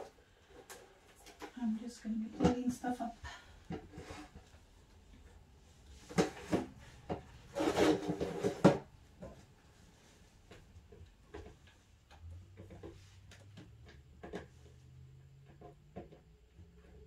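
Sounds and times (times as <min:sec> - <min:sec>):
rustling scrape: 0:03.9 - 0:04.6, 0:05.8 - 0:10.4.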